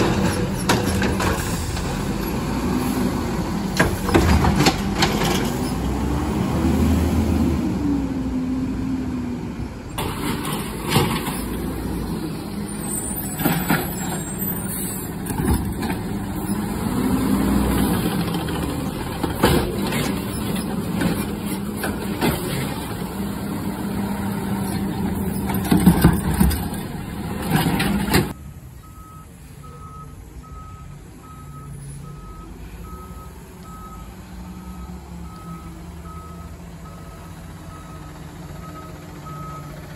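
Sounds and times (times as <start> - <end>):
diesel engine revving: 0.0 - 39.9
truck reversing alarm beeping: 28.2 - 39.9.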